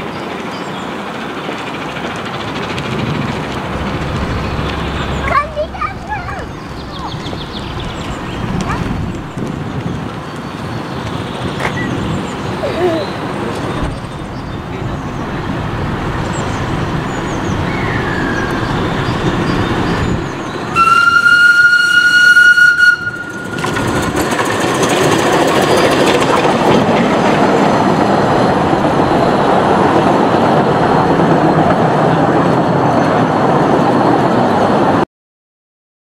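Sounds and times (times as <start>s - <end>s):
wheels clattering on rails: 0.0s - 35.0s
steam whistle: 20.7s - 24.0s.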